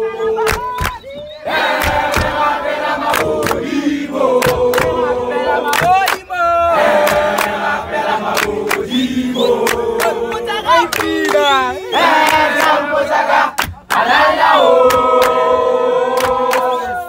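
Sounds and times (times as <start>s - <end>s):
boys singing a chant: 0.0s - 17.0s
handclaps: 0.5s - 1.1s, 1.7s - 2.4s, 3.0s - 3.7s, 4.4s - 5.0s, 5.7s - 6.2s, 7.0s - 7.6s, 8.3s - 8.9s, 9.6s - 10.2s, 10.9s - 11.5s, 13.5s - 14.1s, 14.8s - 15.4s, 16.2s - 16.7s.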